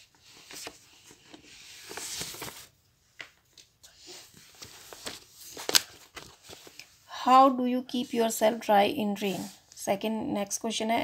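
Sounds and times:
paper rustling: 0.0 - 7.0.

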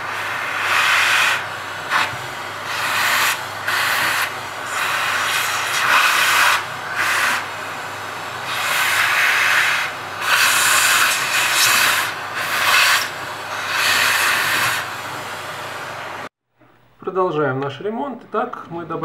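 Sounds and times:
vacuum cleaner suction hiss: 0.0 - 16.3.

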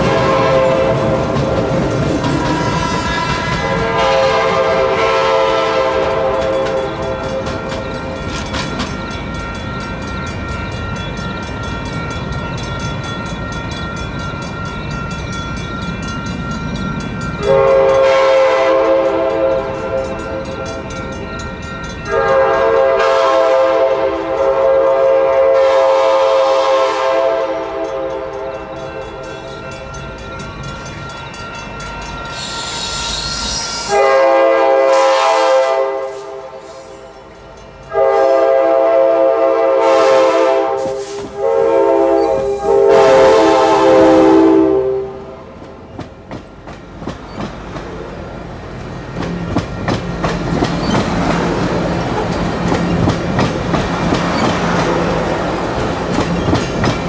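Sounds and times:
train air horn blasts: 0.0 - 7.7, 17.4 - 20.4, 22.0 - 28.7, 32.4 - 37.1, 37.9 - 45.5
train rumbling on rails: 0.0 - 57.0.

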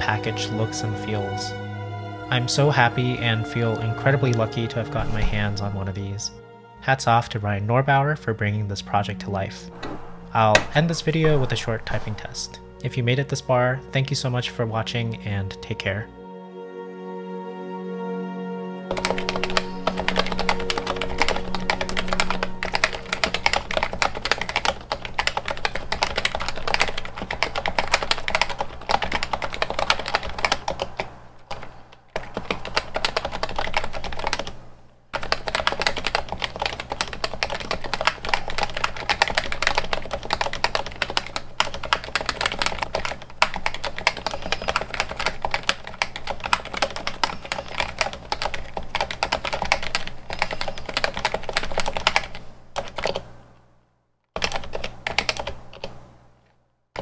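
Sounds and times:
fast typing on keyboard: 18.9 - 34.6, 35.2 - 53.2, 54.4 - 55.9.

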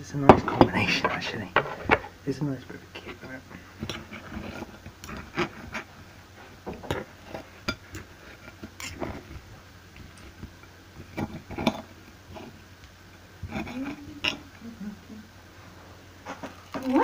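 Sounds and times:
cutlery scraping on plate: 6.9 - 9.3, 13.5 - 14.5.

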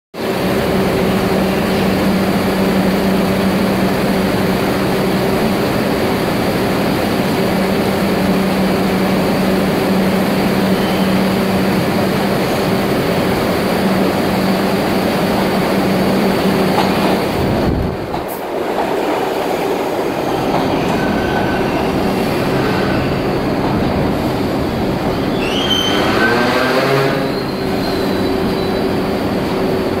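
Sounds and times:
train wheels rumbling on rail: 0.2 - 30.0
train brakes squealing: 10.5 - 11.6, 20.2 - 23.4, 25.2 - 29.3.

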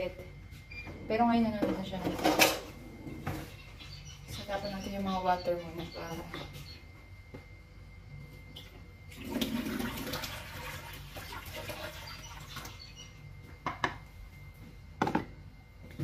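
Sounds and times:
water pouring into a sink: 9.1 - 12.7.

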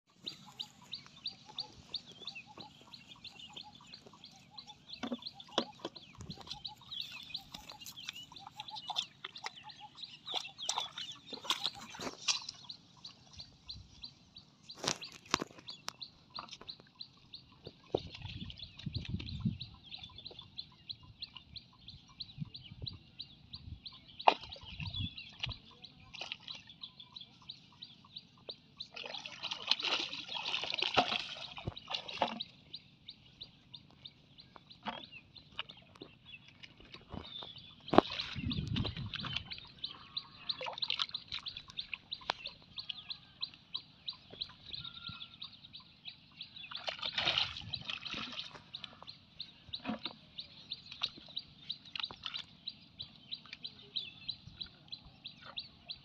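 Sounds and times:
birds chirping: 0.0 - 56.0.

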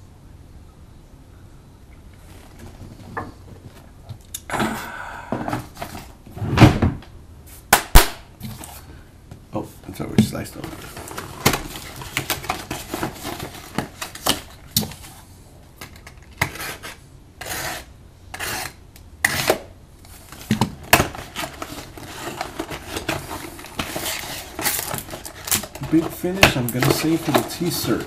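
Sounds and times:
wrapping rustling: 20.1 - 28.0.

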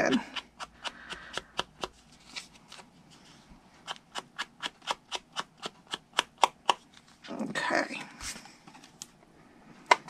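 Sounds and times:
sponge tapping on card: 0.2 - 2.0.

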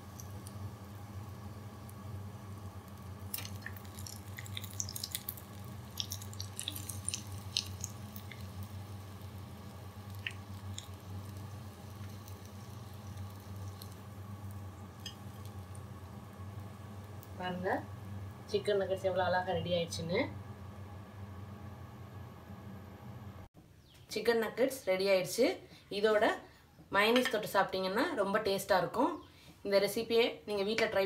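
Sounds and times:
frying oil crackling and popping: 0.0 - 18.7
steady low hum: 0.0 - 23.5.

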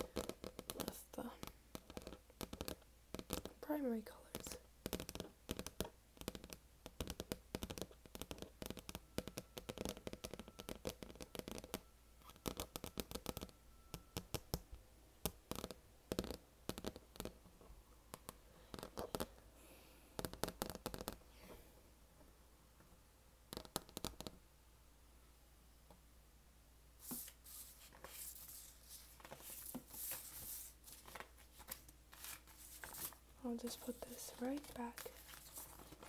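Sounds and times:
fingernails tapping on vinyl record: 0.0 - 3.6, 4.3 - 17.5, 20.2 - 21.2, 23.5 - 24.4.

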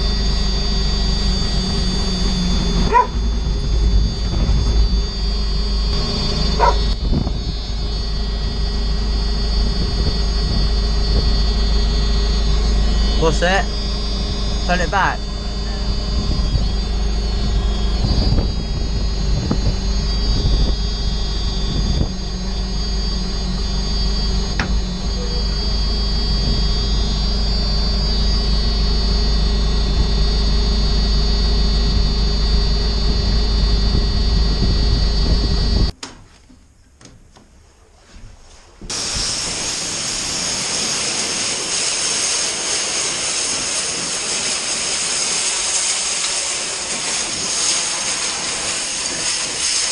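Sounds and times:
engine running: 0.0 - 36.0, 38.6 - 49.9
pressure washer spraying water: 38.9 - 49.9.

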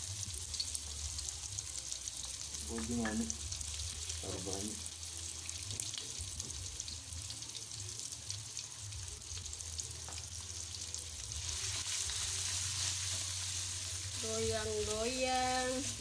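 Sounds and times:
spice paste sizzling in oil: 0.0 - 16.0
spatula stirring in a wok: 11.3 - 16.0.

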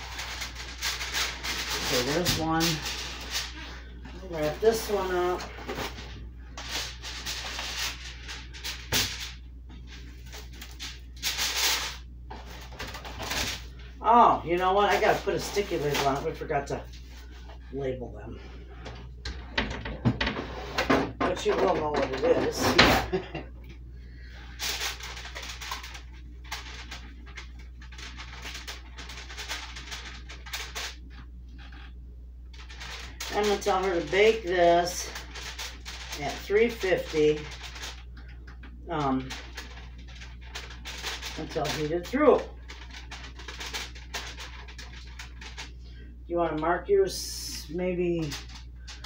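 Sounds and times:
marker scratching on foil: 0.0 - 5.9, 6.6 - 9.4, 10.2 - 12.6, 24.4 - 32.0, 32.6 - 38.1, 38.9 - 46.0
cling film crinkling: 0.0 - 13.9, 14.5 - 17.4, 24.1 - 46.1, 48.0 - 49.0
steady low hum: 0.0 - 49.0.

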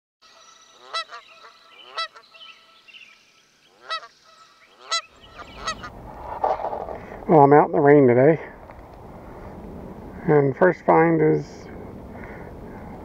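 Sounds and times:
geese honking: 0.2 - 6.9.

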